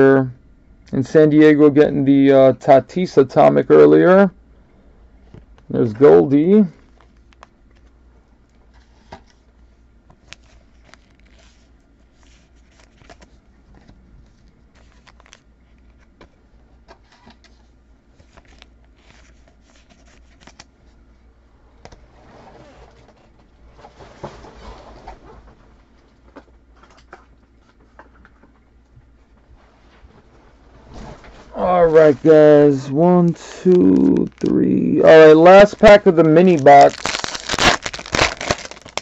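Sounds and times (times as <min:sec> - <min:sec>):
steady low hum: 0:00.0 - 0:39.0
trading cards rustling and clicking: 0:10.1 - 0:16.3, 0:18.2 - 0:20.8, 0:31.8 - 0:39.0.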